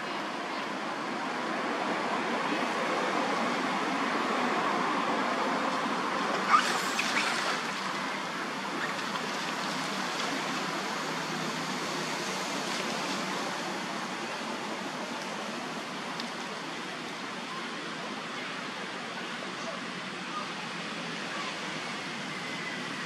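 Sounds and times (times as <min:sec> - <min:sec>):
monkeys splashing through water: 0:06.3 - 0:08.1.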